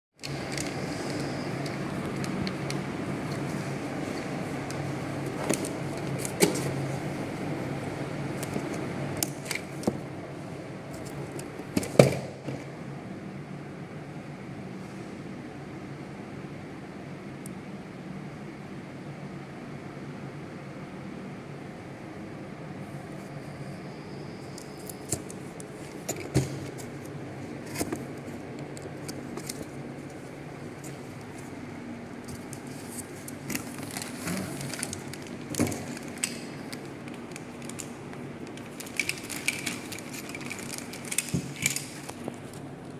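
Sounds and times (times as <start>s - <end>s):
low background hum: 0.2s - 42.9s.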